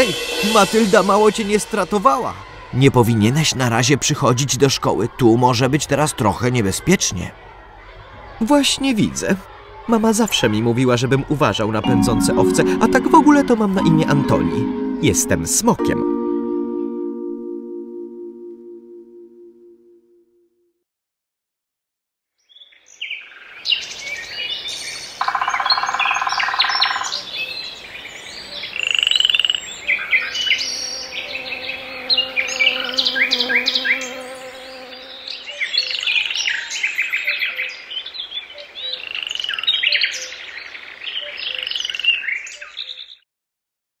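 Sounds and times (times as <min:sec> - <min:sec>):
birds chirping and twittering: 0:22.5 - 0:34.2, 0:34.8 - 0:43.2.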